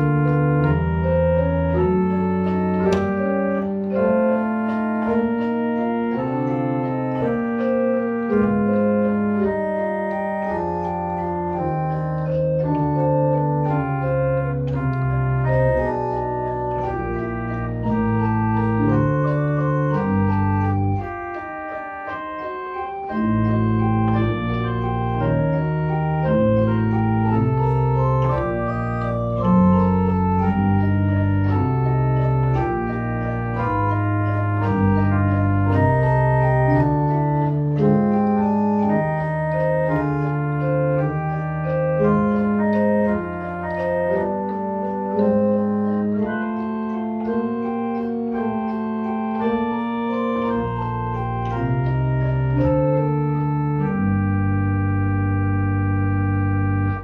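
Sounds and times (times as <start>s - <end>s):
pipe organ playing chords: 0.0s - 57.0s.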